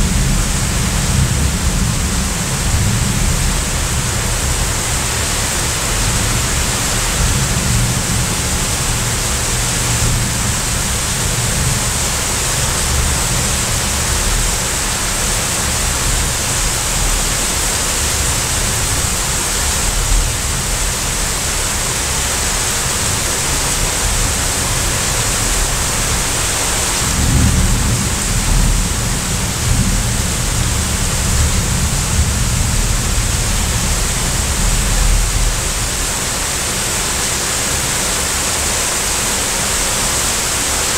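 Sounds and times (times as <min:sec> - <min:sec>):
low rumbling thunder: 0:00.0 - 0:19.0, 0:25.4 - 0:36.1
heavy rain pouring: 0:00.0 - 0:40.9.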